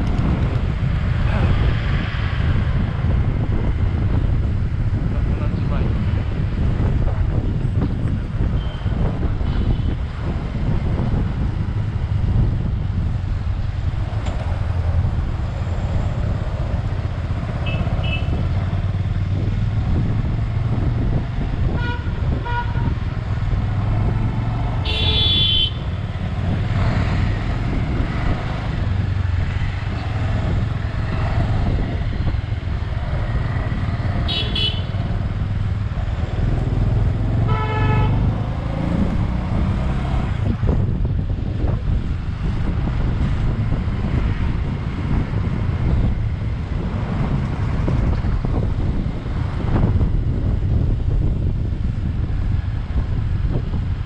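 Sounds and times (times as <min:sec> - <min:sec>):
motorcycle engine drone: 0:00.0 - 0:54.0
wind rush: 0:00.0 - 0:54.0
vehicle horns honking: 0:08.5 - 0:08.9, 0:17.6 - 0:18.4, 0:21.7 - 0:23.0, 0:24.8 - 0:25.8, 0:34.3 - 0:35.0, 0:37.4 - 0:38.3.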